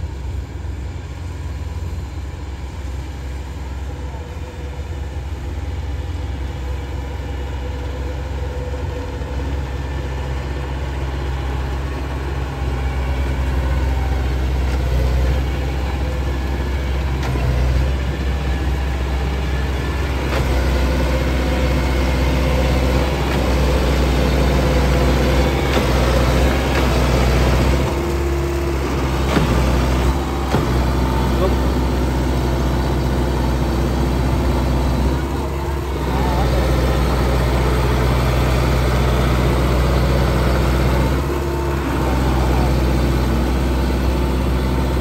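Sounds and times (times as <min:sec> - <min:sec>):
combine harvester engine running: 0:00.0 - 0:45.0.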